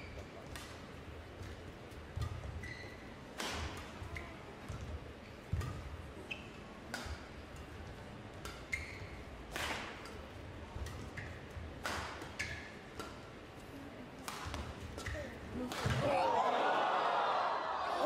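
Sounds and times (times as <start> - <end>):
rackets hitting shuttlecock: 0.4 - 6.1, 6.9 - 8.8, 9.4 - 13.6, 14.2 - 16.2
shoes squeaking on court: 2.2 - 3.2, 4.0 - 6.7, 8.5 - 9.3.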